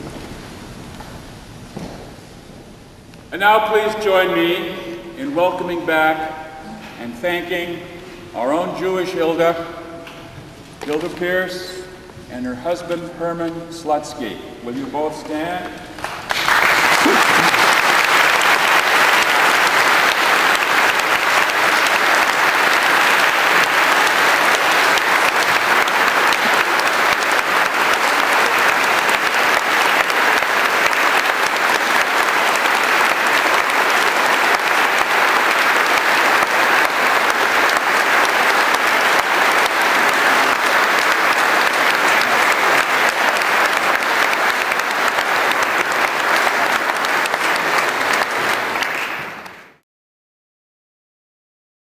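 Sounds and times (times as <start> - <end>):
crowd applauding: 15.7 - 49.8.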